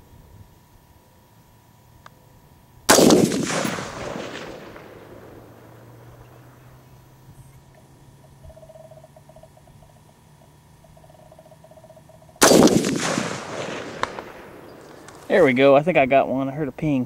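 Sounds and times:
rifle shot with echo: 0:02.9 - 0:06.9, 0:12.4 - 0:15.3.

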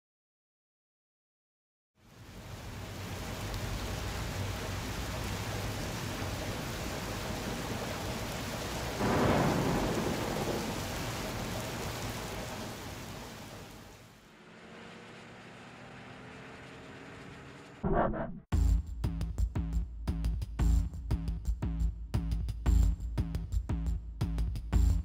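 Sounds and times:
steady rushing noise: 0:02.1 - 0:14.3.

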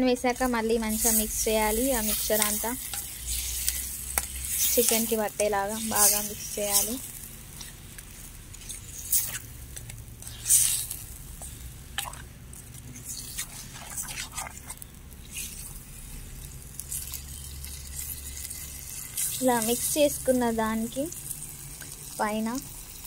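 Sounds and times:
wet squishing: 0:03.3 - 0:16.0.

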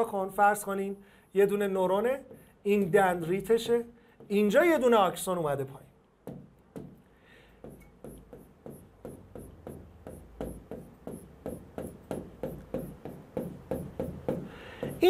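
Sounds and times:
pen scratching on whiteboard: 0:07.6 - 0:15.0.

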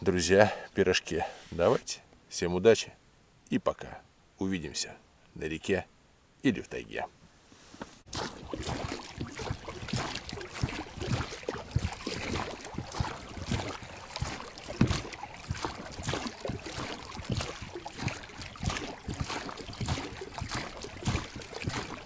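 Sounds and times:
oars splashing in water: 0:08.1 - 0:22.0
water rushing along hull: 0:08.1 - 0:22.0.

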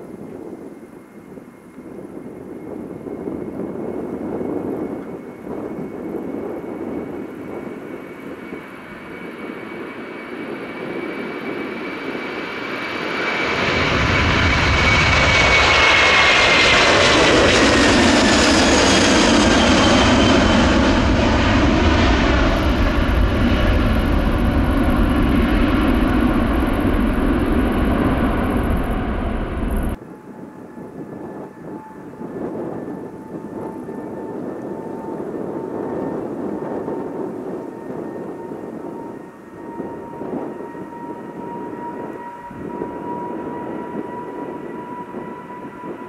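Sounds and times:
high jet engine whine: 0:00.0 - 0:46.0
jet airliner taking off: 0:00.0 - 0:46.0
deep engine rumble: 0:12.9 - 0:30.0.

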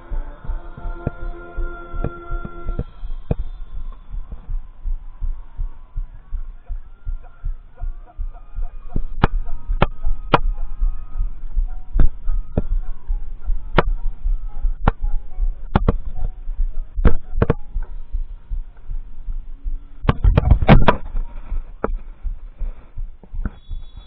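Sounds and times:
faint held tones: 0:00.0 - 0:24.0
wind rumble: 0:00.0 - 0:24.0
microphone handling noise: 0:08.9 - 0:24.0.

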